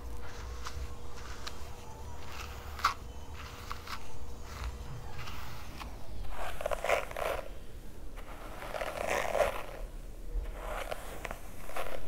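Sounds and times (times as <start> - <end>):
brush scraping through wet hair: 0.0 - 7.6, 8.2 - 12.0.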